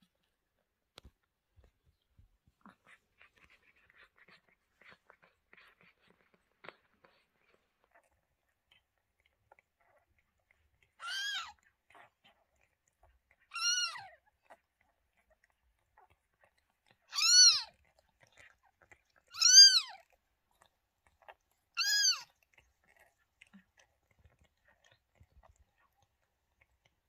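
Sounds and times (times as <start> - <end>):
cat licking wet clicks: 2.8 - 27.0
kitten mewing: 11.0 - 11.5, 13.5 - 14.1, 17.1 - 17.7, 19.3 - 20.0, 21.8 - 22.3.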